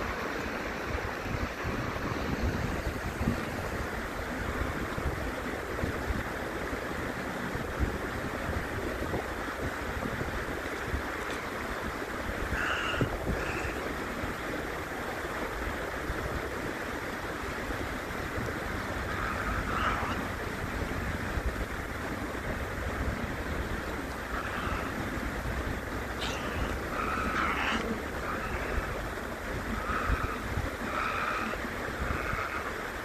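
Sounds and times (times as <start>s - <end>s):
stream water rushing: 0.0s - 33.0s.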